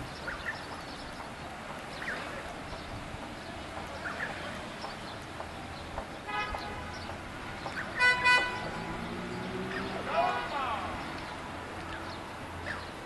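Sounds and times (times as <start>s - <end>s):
vehicle horn honking: 6.3s - 6.9s, 8.0s - 8.8s.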